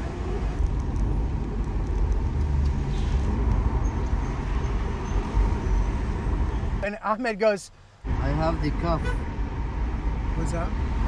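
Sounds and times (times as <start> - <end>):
car engine rumble: 0.0 - 11.0
road noise: 0.0 - 11.0.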